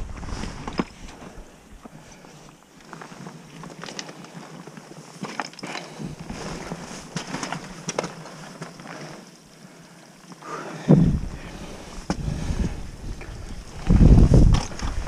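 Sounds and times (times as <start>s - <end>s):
wind on microphone: 10.8s - 15.0s.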